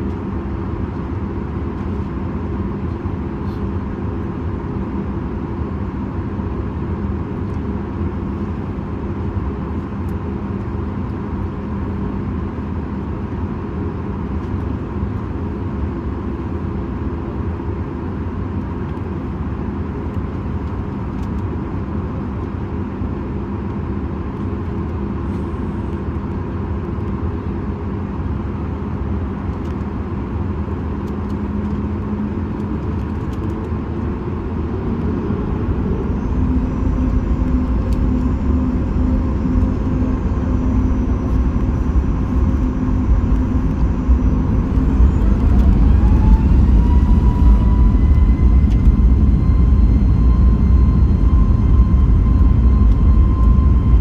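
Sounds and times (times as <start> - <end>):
aircraft cabin hum: 18.0 - 54.0
jet engine whine rising: 20.8 - 54.0.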